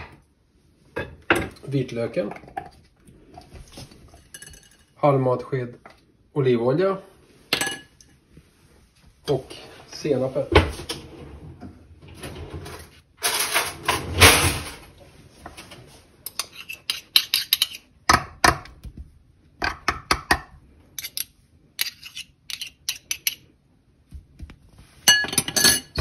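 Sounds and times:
metal spoon scraping container: 0:16.2 - 0:18.0, 0:21.0 - 0:23.5.

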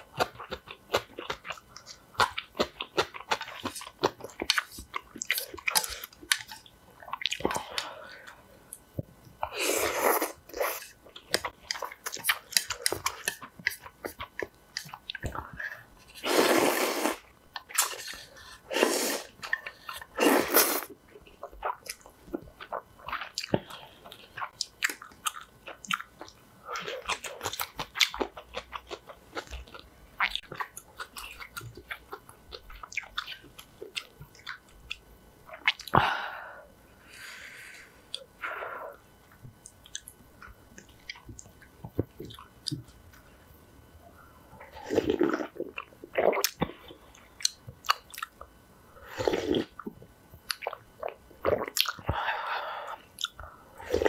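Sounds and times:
person slurping broth: 0:16.2 - 0:17.2, 0:17.9 - 0:19.4, 0:20.2 - 0:20.9
chewing: 0:49.2 - 0:52.1.

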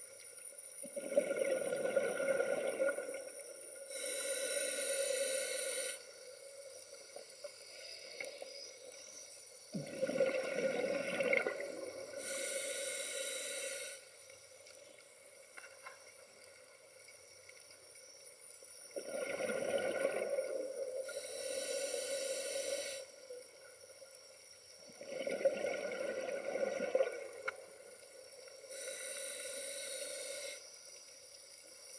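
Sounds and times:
bubbling exhale through regulator: 0:00.9 - 0:03.2, 0:09.8 - 0:14.0, 0:19.0 - 0:23.1, 0:25.0 - 0:27.4
hissing inhale through regulator: 0:03.8 - 0:06.7, 0:10.0 - 0:14.3, 0:19.1 - 0:23.4, 0:26.4 - 0:31.0.

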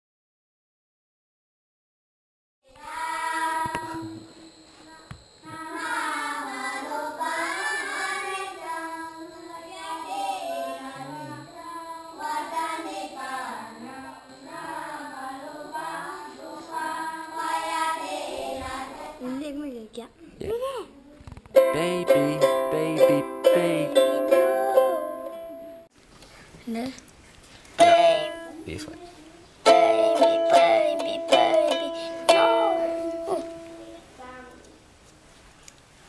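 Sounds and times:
child singing: 0:02.7 - 0:04.2, 0:04.8 - 0:19.7, 0:21.6 - 0:25.2, 0:27.8 - 0:34.6.

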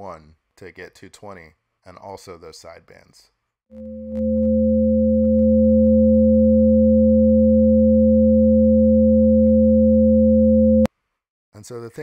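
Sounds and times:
steady sine tone chord: 0:03.7 - 0:10.9.

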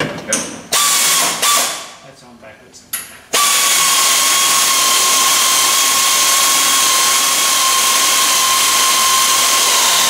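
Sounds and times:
power drill whining on steel: 0:03.4 - 0:10.0.

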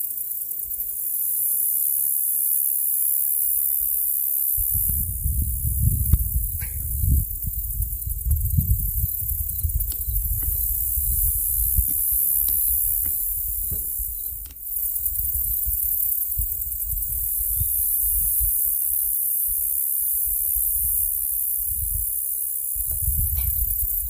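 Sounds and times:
high-pitched insect drone: 0:00.0 - 0:24.0
wind buffeting microphone: 0:04.6 - 0:19.1, 0:20.2 - 0:24.0.

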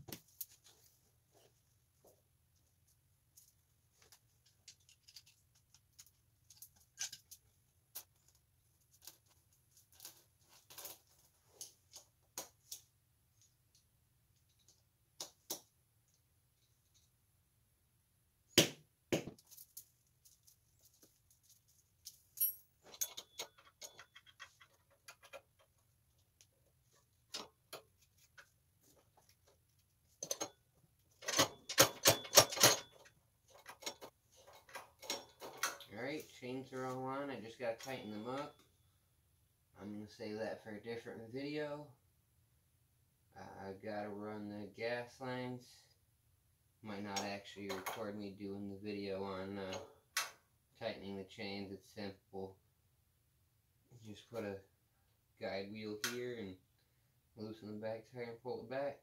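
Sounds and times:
metal clinks of tools and chain: 0:22.0 - 0:25.3, 0:31.2 - 0:33.1.

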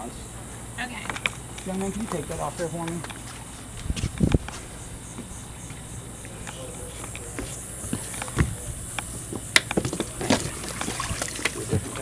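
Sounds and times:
low steady hum: 0:00.0 - 0:12.0
knocks and taps on boat: 0:07.3 - 0:12.0.

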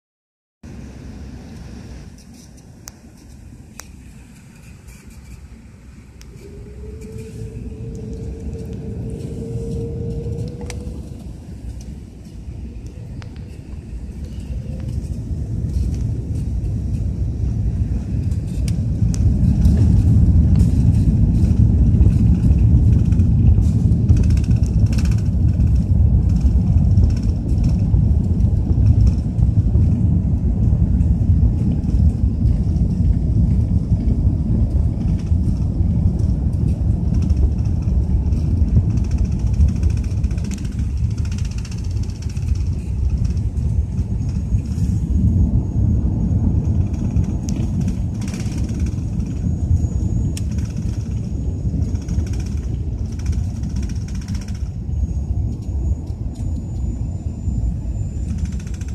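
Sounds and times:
aircraft cabin rumble: 0:00.6 - 0:58.9
faint high whine: 0:00.7 - 0:20.8, 0:39.8 - 0:58.9.

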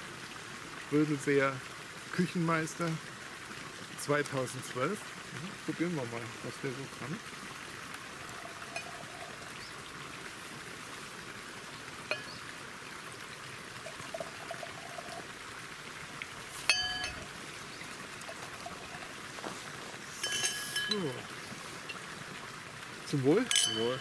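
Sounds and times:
wine pouring into glass: 0:08.1 - 0:09.6, 0:13.8 - 0:15.4, 0:16.5 - 0:22.1, 0:23.4 - 0:24.0
glass clink: 0:08.6 - 0:09.1, 0:12.1 - 0:12.4, 0:16.7 - 0:17.3, 0:20.2 - 0:21.2, 0:23.4 - 0:24.0.

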